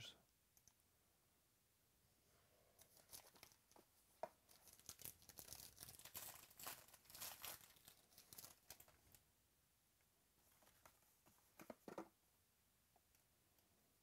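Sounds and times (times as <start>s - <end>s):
foil wrapper tearing and crinkling: 4.5s - 9.2s.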